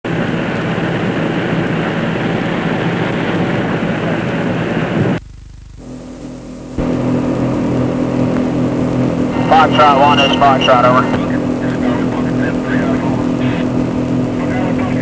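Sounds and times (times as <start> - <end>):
boat engines droning: 5.9 - 15.0.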